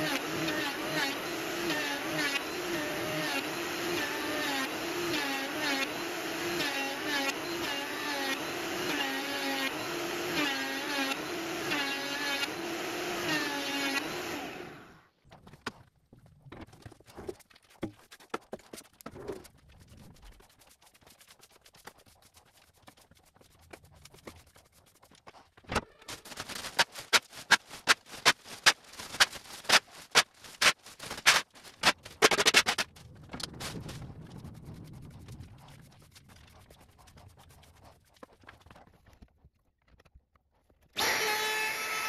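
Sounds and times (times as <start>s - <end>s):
broom sweeping concrete floor: 20.2s - 32.9s.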